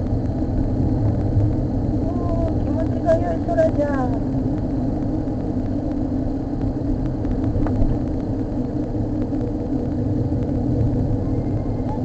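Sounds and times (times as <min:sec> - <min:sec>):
car engine and tyres rumbling: 0:00.0 - 0:12.0.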